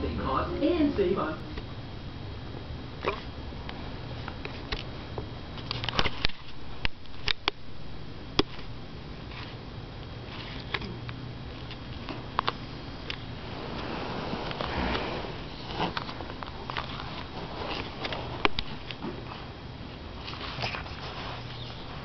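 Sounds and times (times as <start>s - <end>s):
dog stirring on couch: 11.7s - 22.0s.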